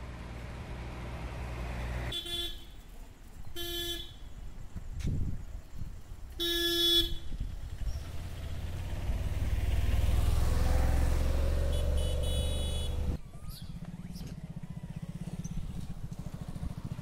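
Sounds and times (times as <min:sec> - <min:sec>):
truck engine rumble passing: 0:00.0 - 0:02.1, 0:07.6 - 0:17.0
truck horn honk: 0:02.1 - 0:02.8, 0:06.4 - 0:07.3, 0:11.6 - 0:13.2
high-pitched horn beeps: 0:11.7 - 0:13.1.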